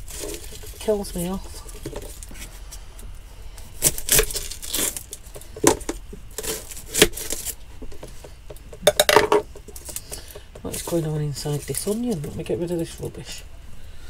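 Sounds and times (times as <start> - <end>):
onion skin tearing: 3.8 - 5.4, 6.3 - 7.6.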